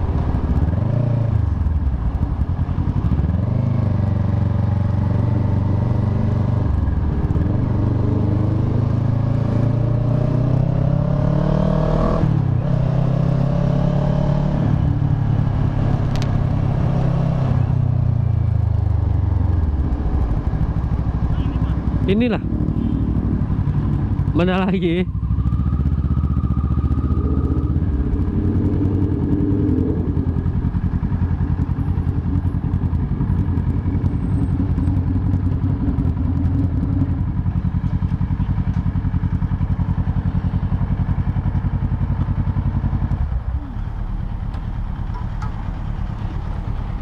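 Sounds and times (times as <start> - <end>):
motorcycle engine idling: 17.8 - 47.0.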